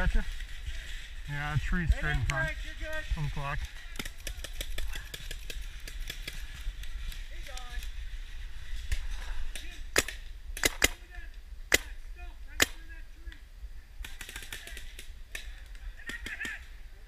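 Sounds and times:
paintball markers firing: 3.6 - 7.9, 9.5 - 11.1, 14.0 - 16.6.

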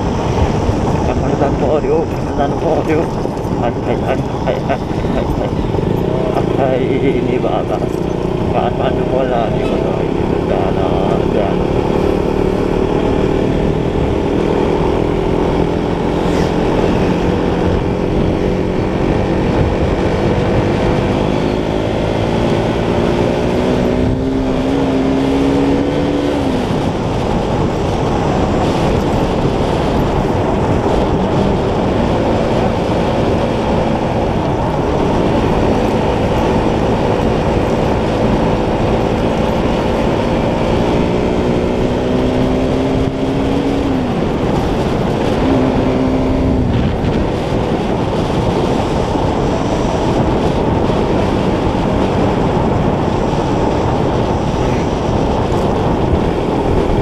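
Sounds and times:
motorcycle engine running: 0.0 - 57.0
wind noise: 0.0 - 57.0.

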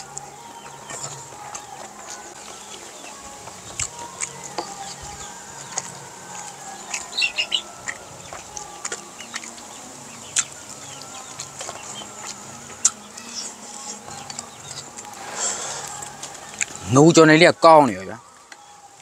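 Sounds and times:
chickens clucking: 0.0 - 17.1.

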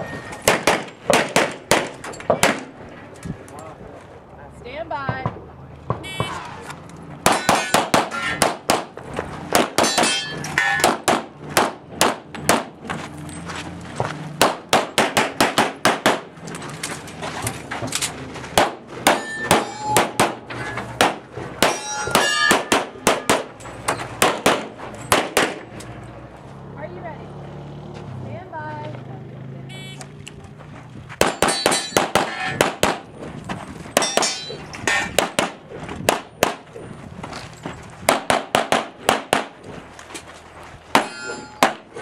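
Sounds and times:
pistol fire: 0.4 - 2.7, 7.2 - 8.9, 10.8 - 12.7, 14.4 - 16.3, 18.6 - 20.4, 22.5 - 23.5, 24.2 - 25.7, 31.2 - 33.1, 35.2 - 36.6, 38.1 - 39.6
steel targets ringing: 7.3 - 8.5, 9.8 - 11.0, 19.0 - 21.0, 21.6 - 23.9, 31.3 - 32.6, 34.0 - 35.2, 40.9 - 42.0.

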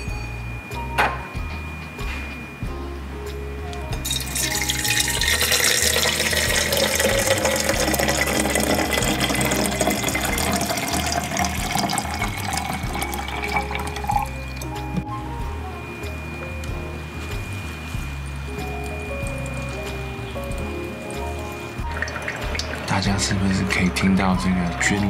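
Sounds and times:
water pouring into kettle: 4.0 - 14.7, 20.4 - 23.3.

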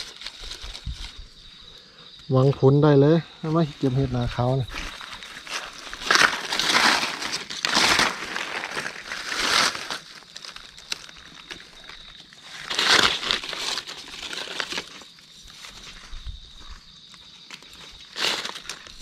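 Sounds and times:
dry leaves crunching: 3.8 - 16.8, 17.5 - 19.0.

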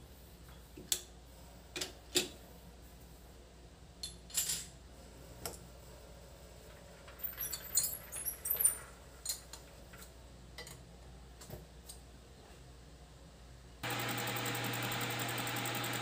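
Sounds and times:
metal tools clinking: 7.2 - 9.5.

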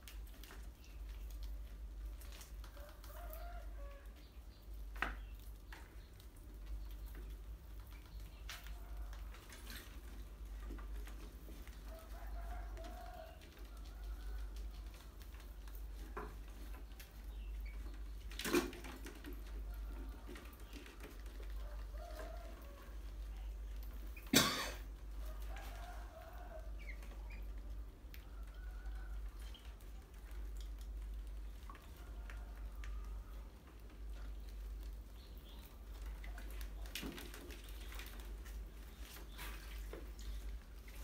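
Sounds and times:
rats scurrying on tiles: 0.0 - 41.0.

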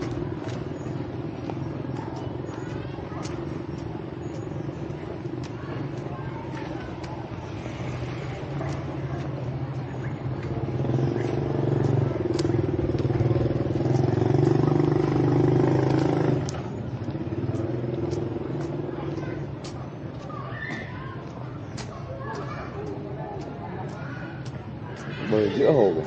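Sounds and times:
motorbike engine running: 0.0 - 20.2.

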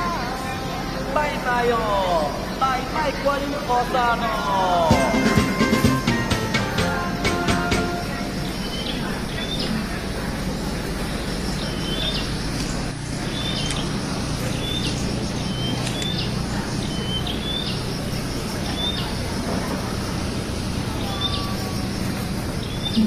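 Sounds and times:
crowded hall din: 0.0 - 23.0
small birds chirping: 7.7 - 23.0.

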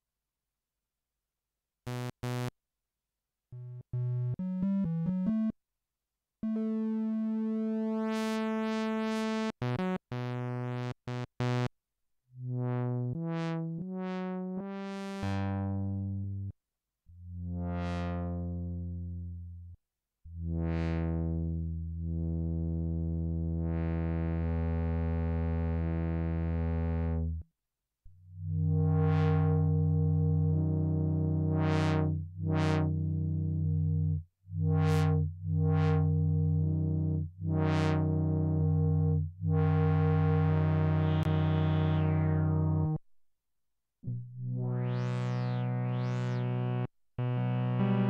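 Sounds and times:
synthesizer notes and phrases: 4.0 - 5.6, 6.4 - 10.1, 12.6 - 16.1, 20.5 - 21.5, 28.5 - 43.0, 44.6 - 48.0.

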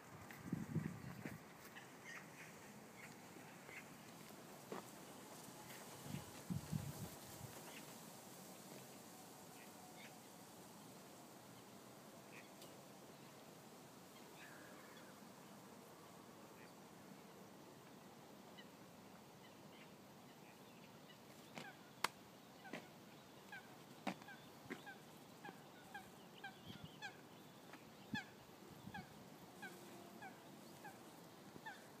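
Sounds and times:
waterbirds honking: 28.1 - 31.0.

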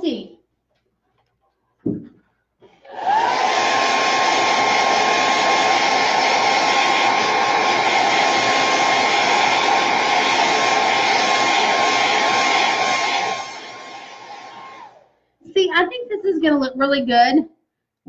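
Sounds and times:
hair dryer running: 2.9 - 15.1.

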